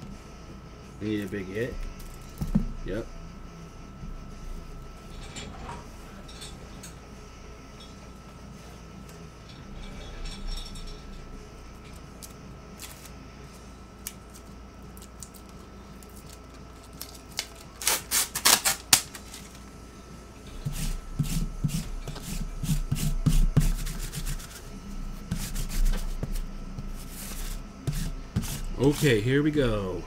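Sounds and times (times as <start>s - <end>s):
wrapper ripping: 14.3s - 19.6s.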